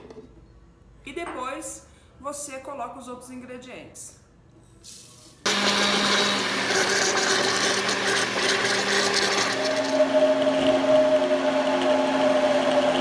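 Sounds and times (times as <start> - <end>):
blender motor running: 5.5 - 13.0.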